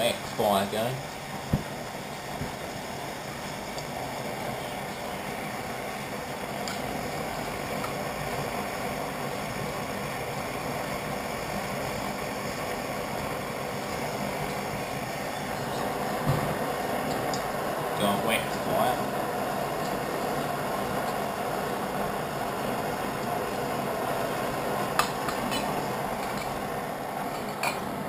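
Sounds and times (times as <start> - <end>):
pressure stove burner rushing: 0.0 - 28.0.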